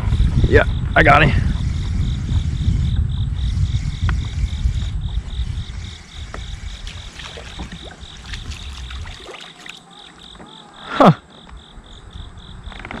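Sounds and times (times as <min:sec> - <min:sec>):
water splashing and sloshing: 0:06.3 - 0:10.5
fish thrashing at the surface: 0:06.9 - 0:10.3.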